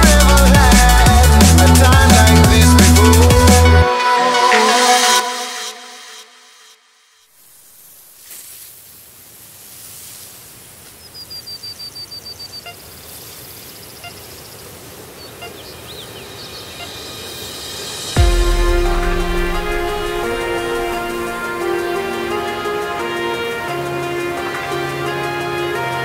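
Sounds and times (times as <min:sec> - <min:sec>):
music: 0:00.0 - 0:07.0, 0:17.8 - 0:26.0.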